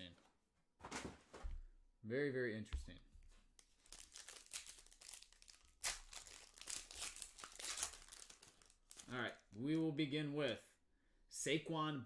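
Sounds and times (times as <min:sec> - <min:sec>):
wrapper tearing and crinkling: 0:03.8 - 0:09.5.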